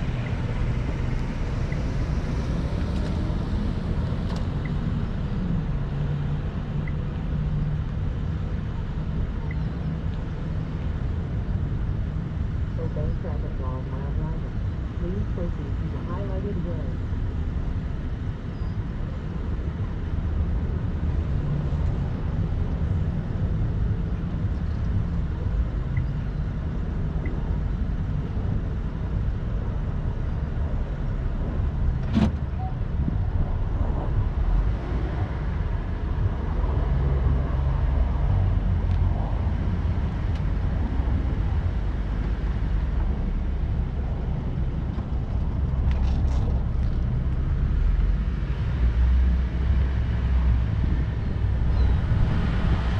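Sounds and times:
car engine and tyres rumbling: 0:00.0 - 0:52.9.

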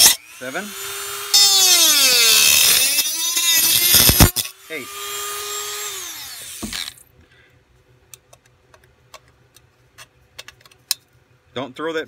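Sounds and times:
rotary tool winding down: 0:00.0 - 0:07.0.

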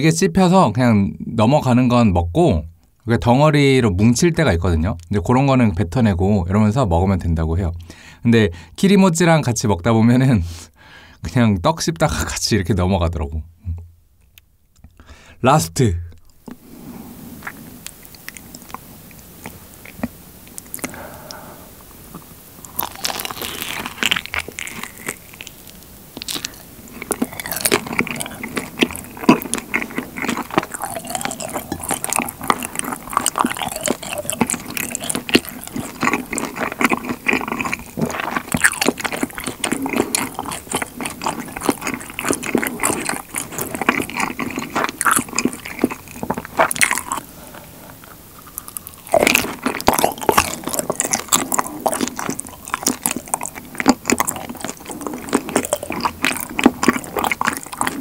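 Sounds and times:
chewing honeycomb: 0:17.4 - 0:58.0.

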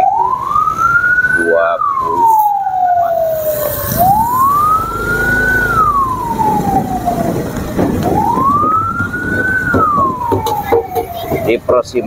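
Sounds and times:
motorcycle and traffic engines rumbling: 0:00.0 - 0:12.0
vehicle siren wailing: 0:00.0 - 0:12.0.

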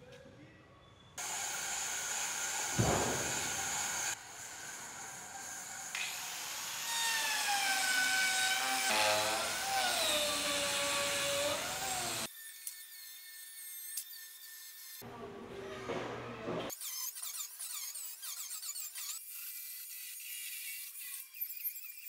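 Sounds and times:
power tool motor whine: 0:01.2 - 0:12.3.

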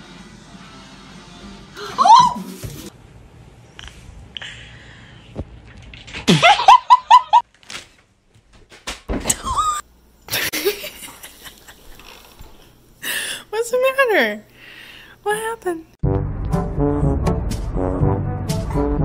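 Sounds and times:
high-pitched laughter: 0:01.8 - 0:02.4.

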